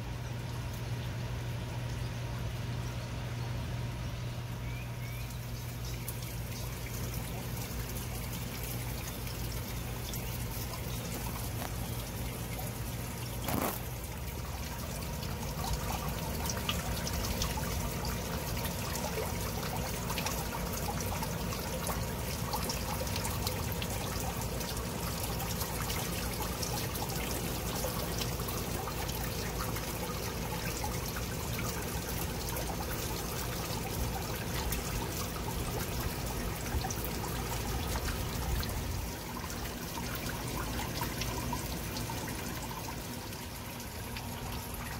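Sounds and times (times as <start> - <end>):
fountain water trickling and splashing: 0.0 - 44.9.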